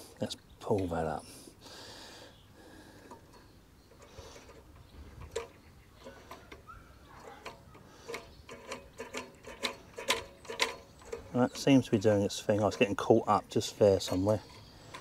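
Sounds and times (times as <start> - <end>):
metallic clicks of mower linkage: 3.1 - 15.0.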